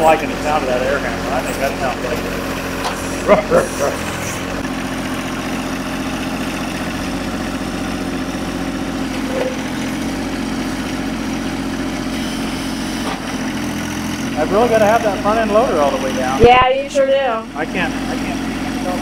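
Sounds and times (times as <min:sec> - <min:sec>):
tractor diesel engine running: 0:00.0 - 0:19.0.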